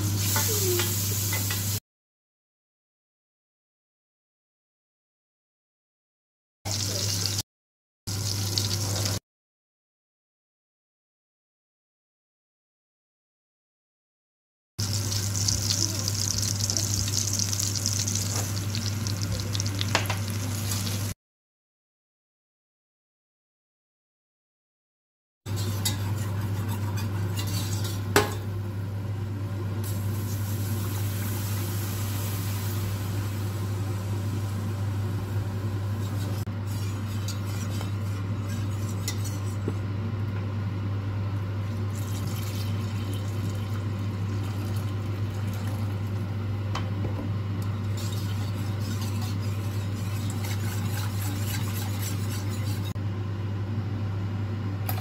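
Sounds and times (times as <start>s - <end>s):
whisk stirring and clinking in pot: 25.5s - 28.3s, 36.0s - 39.8s, 47.6s - 53.0s.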